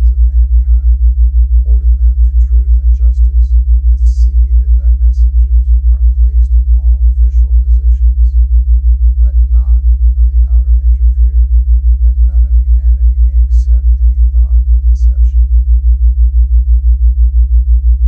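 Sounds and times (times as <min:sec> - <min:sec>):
faint murmuring voice: 0:00.0 - 0:08.3, 0:09.1 - 0:11.4
low pulsing tone: 0:00.0 - 0:18.0.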